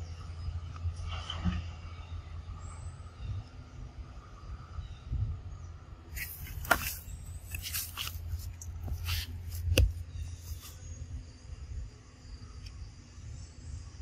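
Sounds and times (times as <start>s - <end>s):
low steady rumble: 0.0s - 14.0s
crunching through dry leaves: 6.2s - 10.8s.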